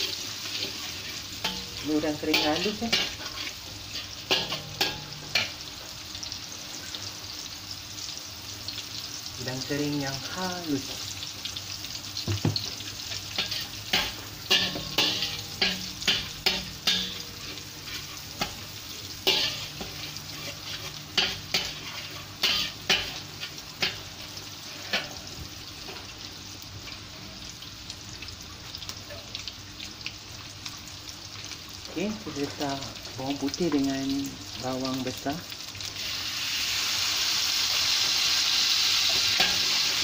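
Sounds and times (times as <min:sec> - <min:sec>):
metal spatula scraping a wok: 0:00.0 - 0:05.6, 0:13.1 - 0:25.3, 0:38.8 - 0:40.0
shrimp sizzling in hot oil: 0:00.0 - 0:40.0.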